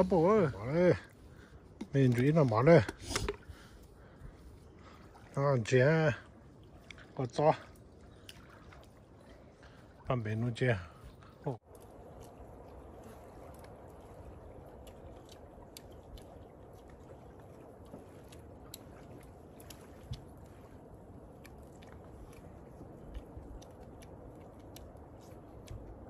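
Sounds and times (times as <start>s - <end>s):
faint chewing: 11.2s - 26.0s.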